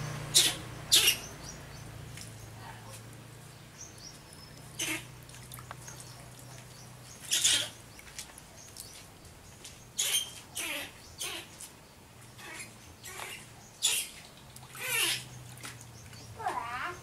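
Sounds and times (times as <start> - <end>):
water splashing in plastic tub: 4.1 - 9.8, 14.2 - 17.0.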